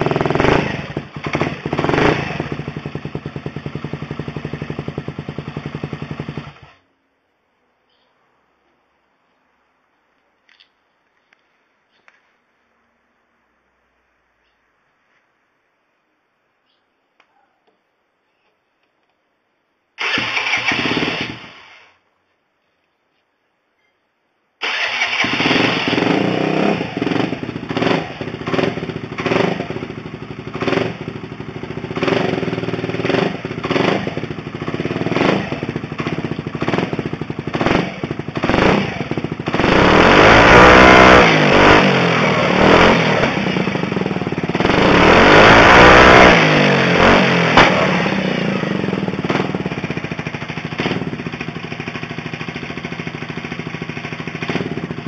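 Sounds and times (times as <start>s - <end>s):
scooter engine revving: 0.0s - 6.8s, 20.0s - 21.9s, 24.6s - 55.0s.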